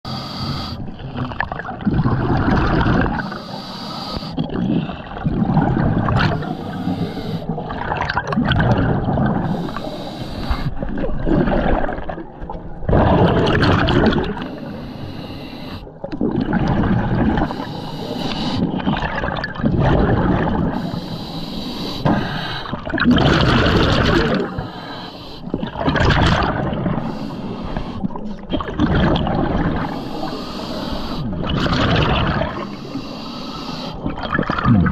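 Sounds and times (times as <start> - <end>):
diver breathing through regulator: 0.1 - 1.0, 3.1 - 5.0, 6.1 - 7.8, 9.2 - 10.9, 14.3 - 16.0, 17.3 - 18.9, 20.6 - 25.7, 26.9 - 28.3, 29.6 - 34.2
exhaled bubbles gurgling: 0.4 - 34.9.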